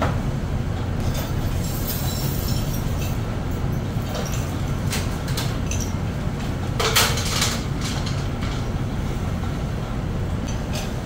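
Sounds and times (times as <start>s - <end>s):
machinery humming: 0.0s - 11.0s
metal chain clinking and rattling: 1.0s - 3.2s.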